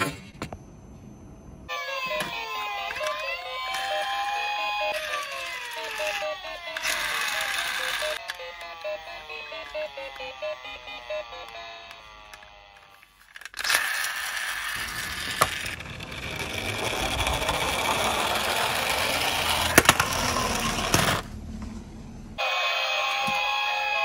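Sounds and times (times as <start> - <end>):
music with gliding pitches: 1.7 - 12.3
toy wheels rolling on wood: 1.7 - 21.4.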